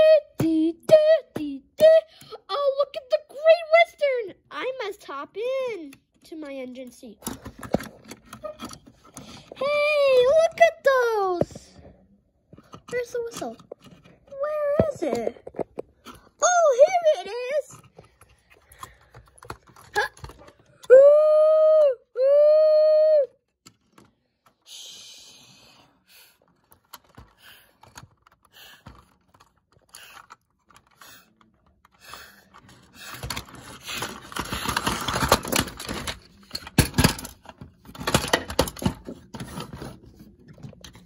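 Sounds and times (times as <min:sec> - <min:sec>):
toy trains clicking and rattling: 0:12.6 - 0:20.9, 0:26.4 - 0:40.1.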